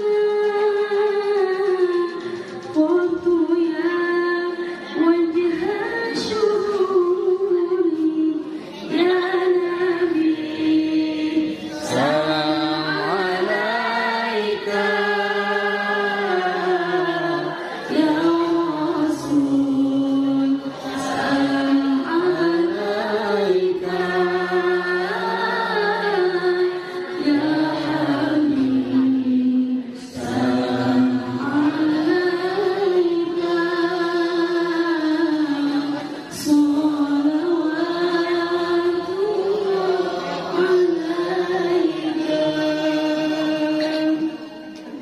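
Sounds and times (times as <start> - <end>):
woman reciting melodically: 0.0 - 45.0.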